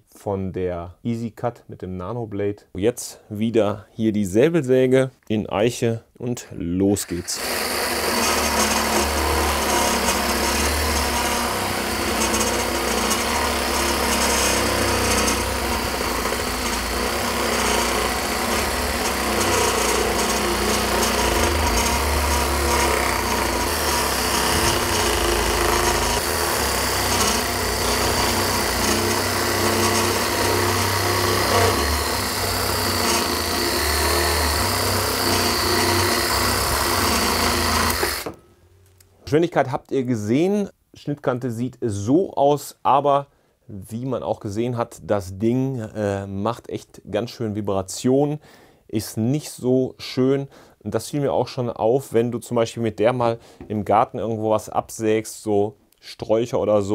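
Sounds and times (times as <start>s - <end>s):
reciprocating saw cutting wood: 7.0s - 38.4s.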